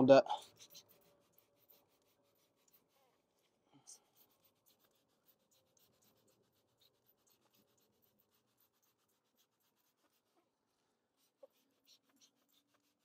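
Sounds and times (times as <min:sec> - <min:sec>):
faint rapid scratchy ticks: 0:00.4 - 0:10.4.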